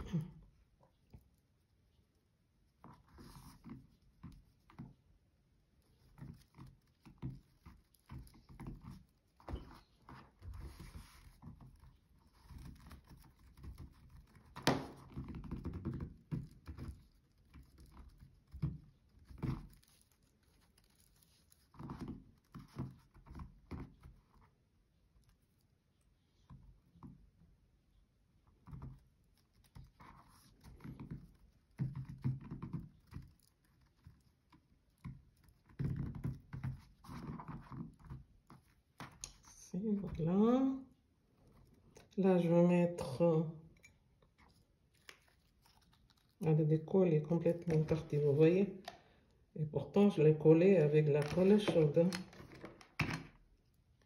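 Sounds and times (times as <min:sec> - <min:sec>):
hands handling fabric: 0:43.0 - 0:49.2.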